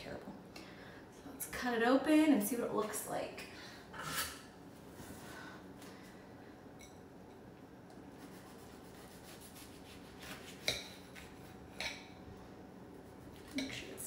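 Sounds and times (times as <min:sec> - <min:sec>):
knife sawing through crisp bread: 0:08.2 - 0:11.5.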